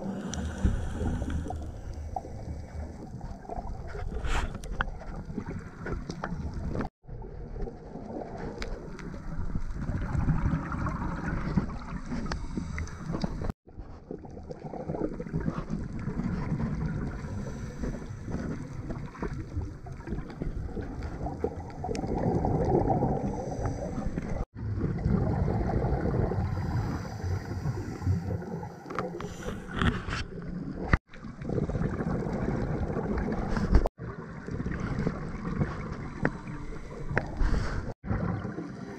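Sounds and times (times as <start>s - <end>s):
exhaled bubbles: 0.0s - 38.9s
regulator breathing underwater: 17.1s - 18.7s, 23.1s - 24.5s, 26.4s - 29.8s, 36.2s - 38.0s.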